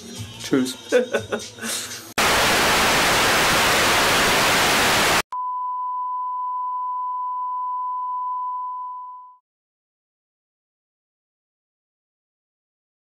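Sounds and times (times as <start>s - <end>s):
tv static hiss: 2.2s - 5.3s.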